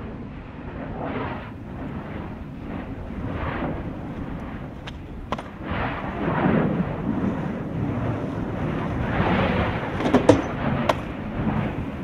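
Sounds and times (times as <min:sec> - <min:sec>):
skateboard wheels rolling on concrete: 0:01.4 - 0:12.0
skateboard clacks: 0:04.0 - 0:05.6, 0:09.4 - 0:11.6.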